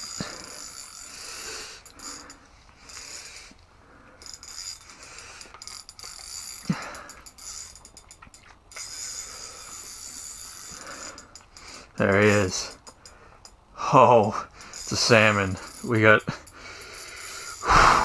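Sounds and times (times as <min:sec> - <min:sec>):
fishing reel clicking and whirring: 0:00.0 - 0:13.6, 0:14.2 - 0:18.0.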